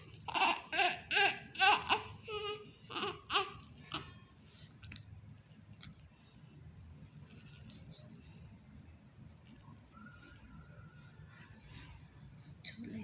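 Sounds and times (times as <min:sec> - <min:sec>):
newborn baby crying: 0:00.0 - 0:04.2.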